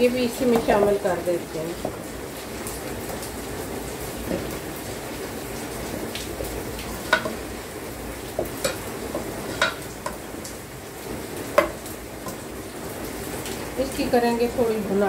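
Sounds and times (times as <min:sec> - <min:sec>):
masala sizzling in a pot: 0:00.0 - 0:15.0
ladle clacking against pot: 0:07.0 - 0:07.4, 0:08.4 - 0:10.2
metal ladle scraping a pot: 0:08.6 - 0:10.2.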